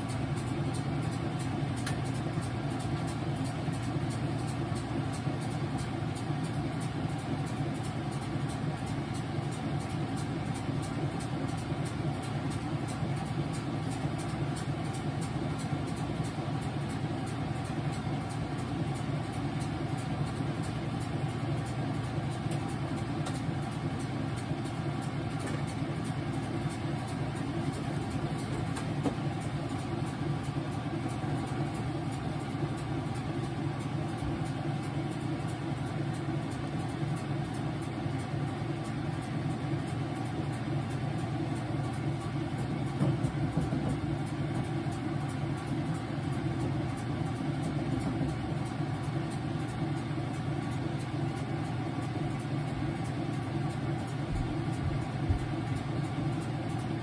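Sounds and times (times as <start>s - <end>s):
washing machine motor hum: 0.0s - 57.0s.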